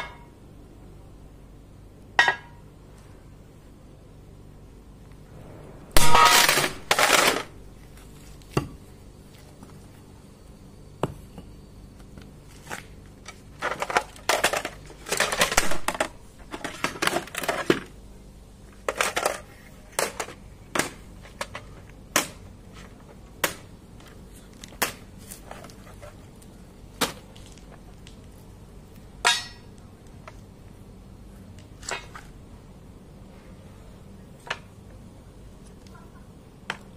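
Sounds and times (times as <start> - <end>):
sledgehammer crashing on metal: 6.0 - 7.5.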